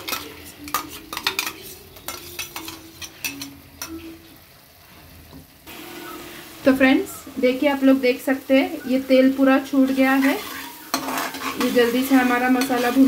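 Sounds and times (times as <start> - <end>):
metal spoon scraping metal pan: 0.0 - 4.0, 9.8 - 13.0
paste sizzling in oil: 5.6 - 13.0.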